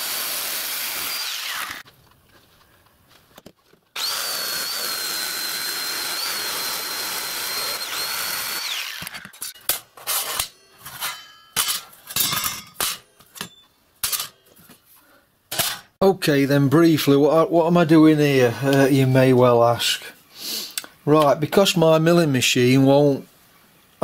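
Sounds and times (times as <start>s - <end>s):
jigsaw cutting metal: 0.0s - 1.8s, 4.0s - 9.6s
metal sheets clanking: 9.4s - 14.5s.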